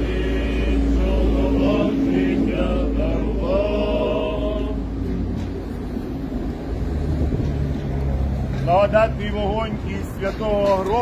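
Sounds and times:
voices singing a chant: 0.0 - 5.3
low rumble: 0.0 - 10.0.

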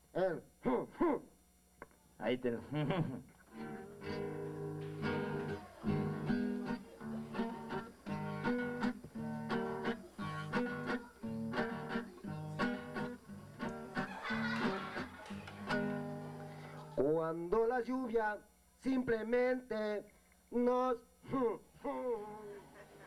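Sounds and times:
acoustic guitar strummed and plucked: 3.5 - 17.0.

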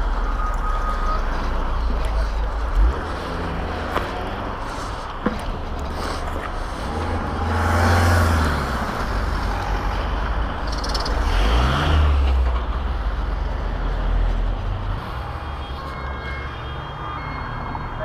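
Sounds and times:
road and wind noise: 0.0 - 18.0
vehicle engine accelerating: 5.7 - 14.4.

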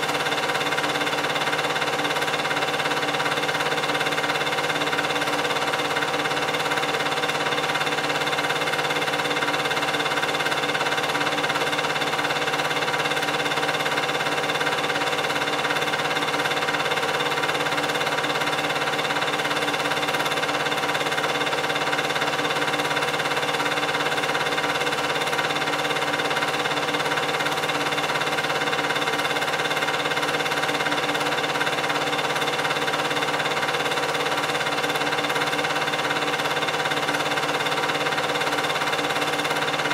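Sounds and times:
film projector humming: 0.0 - 39.9.

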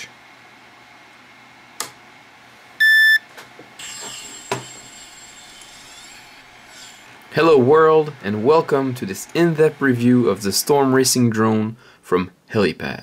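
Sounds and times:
electronic beep: 2.8 - 3.2.

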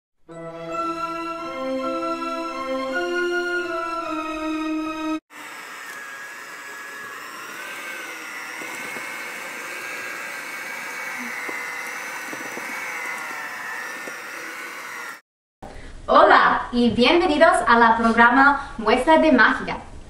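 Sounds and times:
electric hand mixer whine: 5.1 - 15.3.

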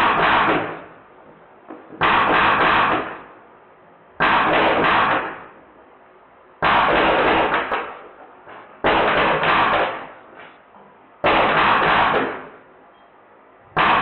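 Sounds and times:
bb gun full-auto bursts: 2.0 - 3.2, 4.2 - 5.5, 6.6 - 8.0, 8.8 - 10.2, 11.2 - 12.5, 13.8 - 14.0.

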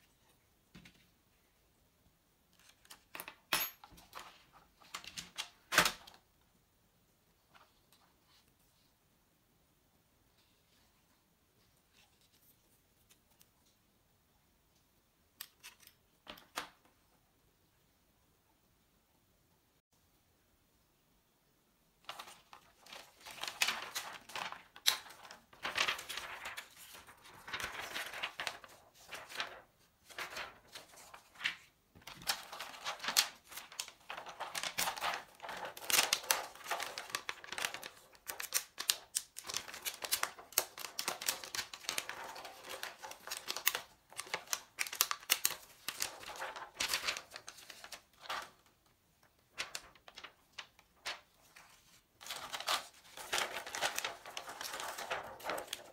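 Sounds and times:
plastic sheets crinkling: 22.0 - 55.9.

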